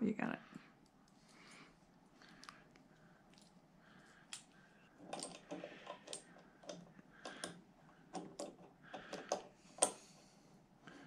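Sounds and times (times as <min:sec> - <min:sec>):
hand tools clicking and knocking: 0:04.4 - 0:10.0.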